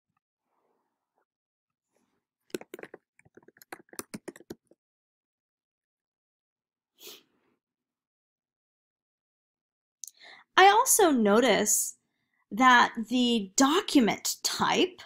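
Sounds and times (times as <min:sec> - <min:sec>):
keyboard typing: 0:02.5 - 0:04.8.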